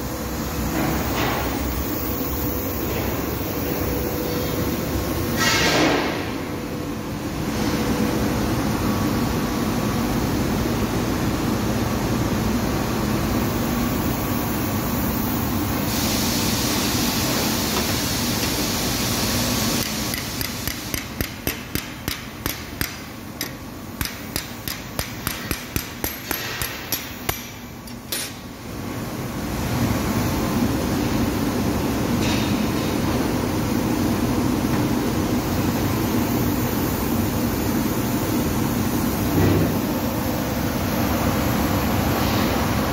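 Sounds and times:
sharp metallic knocks: 0:20.1 - 0:28.3.

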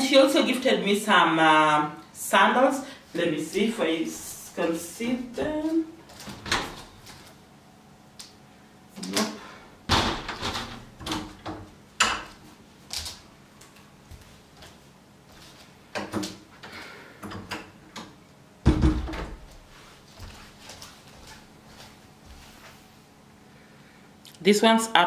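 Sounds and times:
door opening: 0:06.1 - 0:06.9.

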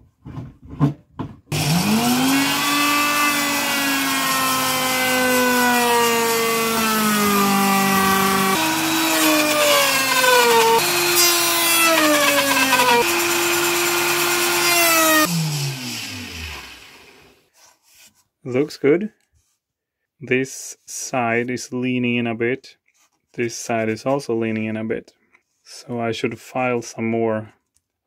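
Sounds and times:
electric router cutting wood: 0:01.5 - 0:17.4
router motor winding down: 0:01.5 - 0:17.4.

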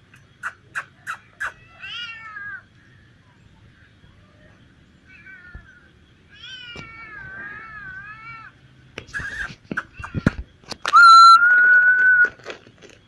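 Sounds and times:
cats meowing: 0:00.8 - 0:02.7, 0:04.2 - 0:10.4.

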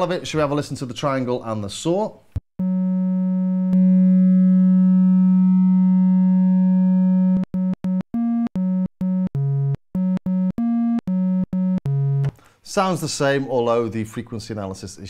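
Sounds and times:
analog synthesizer tones: 0:02.6 - 0:12.3.

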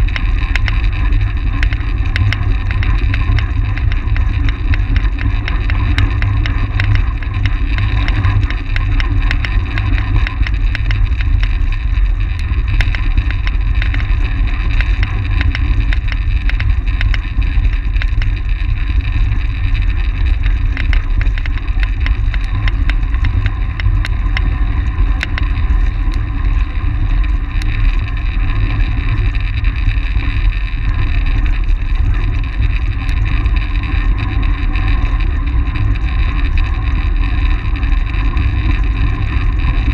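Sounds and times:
light ticks: 0:00.0 - 0:28.2
bike tyres and drivetrain hum: 0:00.0 - 0:39.9
wind rushing over microphone: 0:00.0 - 0:39.9.

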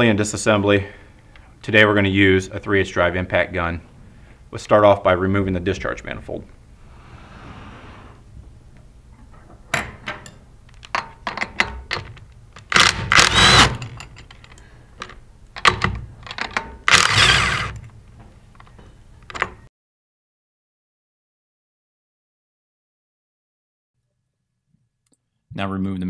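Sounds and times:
tool and bolts clicking: 0:09.7 - 0:17.9
impact gun bursts: 0:12.7 - 0:13.8.

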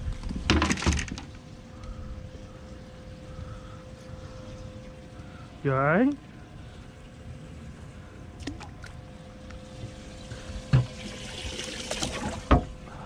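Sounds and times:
steady hum: 0:00.0 - 0:13.0
water splashing and trickling: 0:04.5 - 0:12.8.

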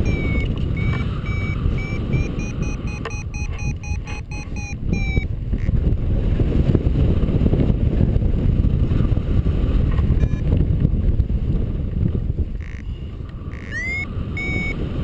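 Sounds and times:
variometer sliding beep: 0:00.0 - 0:05.3, 0:10.2 - 0:10.4, 0:12.6 - 0:14.8
wind buffeting microphone: 0:00.0 - 0:15.0.

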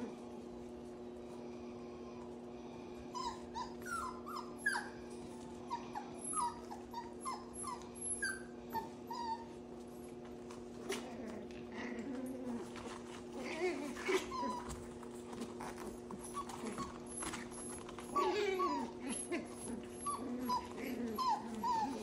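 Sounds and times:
steady low hum: 0:00.0 - 0:22.0
puppies squealing and yelping: 0:03.1 - 0:09.7, 0:11.8 - 0:22.0.

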